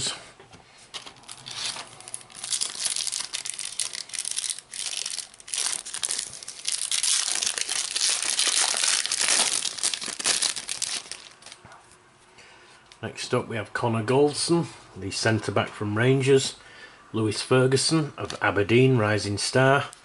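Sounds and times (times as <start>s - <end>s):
wrapper tearing and crinkling: 1.0s - 11.6s.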